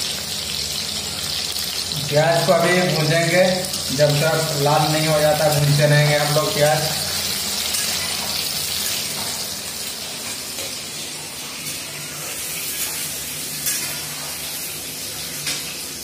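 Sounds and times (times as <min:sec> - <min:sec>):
onions sizzling in oil: 0:00.0 - 0:16.0
spatula scraping pan: 0:12.1 - 0:14.5.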